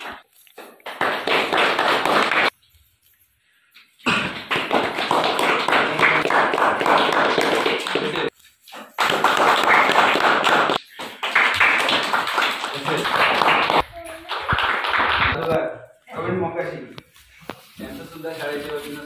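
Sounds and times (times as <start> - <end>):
crowd clapping: 0.0 - 2.5, 4.0 - 15.6.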